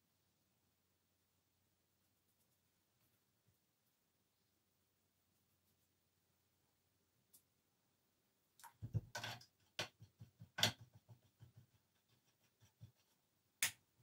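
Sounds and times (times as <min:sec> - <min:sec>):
brush tapping and clicking: 0:08.6 - 0:13.9.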